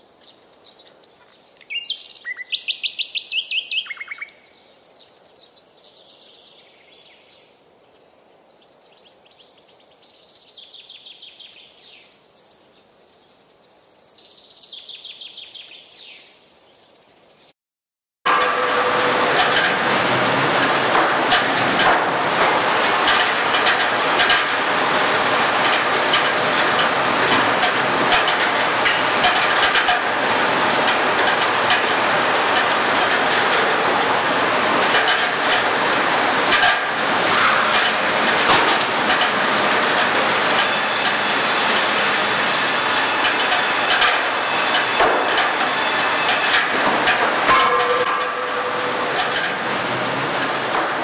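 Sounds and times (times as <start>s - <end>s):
high machine whine: 18.3s - 51.0s
sawmill machinery din: 18.3s - 51.0s
knocks and clatter of wood: 19.4s - 40.8s, 43.4s - 48.5s.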